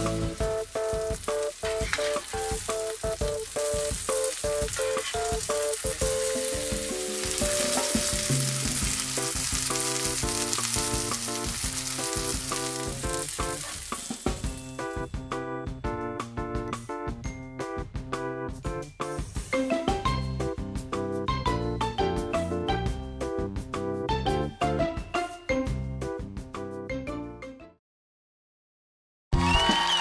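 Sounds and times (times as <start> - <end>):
fish sizzling in a frying pan: 0.0 - 15.1
background music: 0.0 - 27.8.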